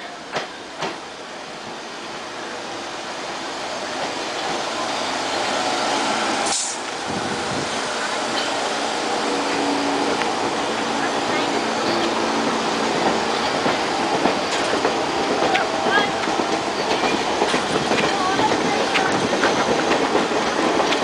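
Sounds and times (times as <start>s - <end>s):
subway train wheels on rails: 0.0s - 21.0s
brief high hiss: 6.4s - 6.9s.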